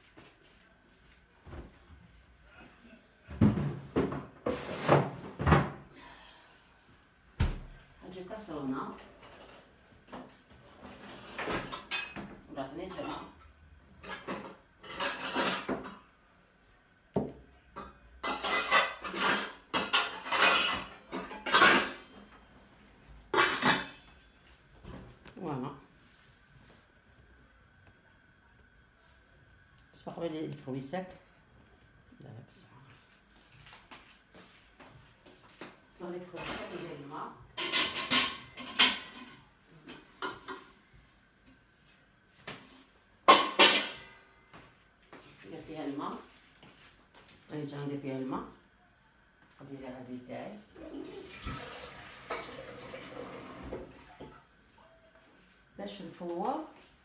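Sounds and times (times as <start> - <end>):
pots and utensils clattering: 3.3 - 5.8, 9.0 - 16.1, 17.8 - 22.4, 23.2 - 25.0, 36.3 - 40.9, 42.6 - 44.3, 50.8 - 54.4.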